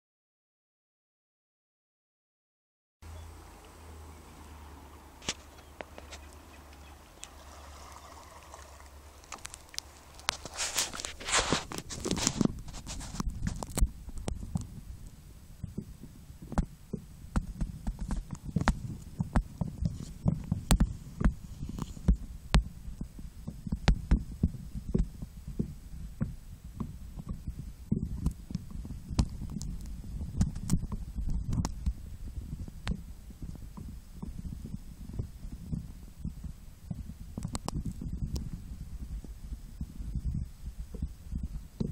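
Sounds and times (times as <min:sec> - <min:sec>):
plastic crinkling: 0:07.9 - 0:13.8
muffled phone handling rumble: 0:08.1 - 0:14.8
muffled underwater rumble: 0:11.6 - 0:41.9.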